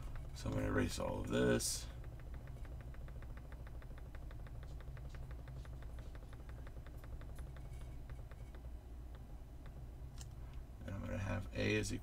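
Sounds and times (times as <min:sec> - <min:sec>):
low hum: 0:00.0 - 0:12.0
stylus clicking on tablet: 0:00.1 - 0:10.3.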